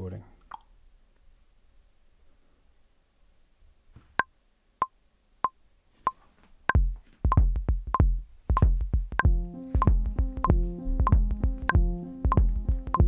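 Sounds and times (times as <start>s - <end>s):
drum machine kick pattern: 6.7s - 13.0s.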